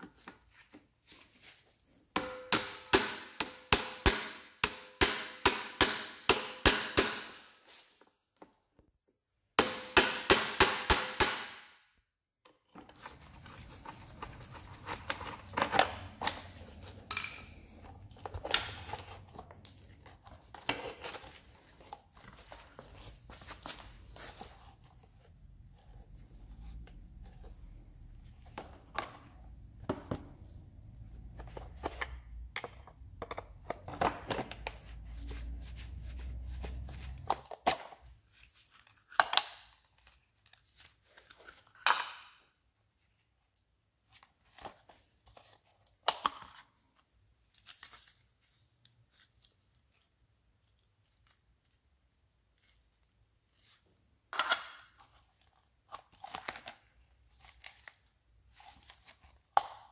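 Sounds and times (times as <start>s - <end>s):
plastic parts scraping and creaking: 12.5s - 23.3s.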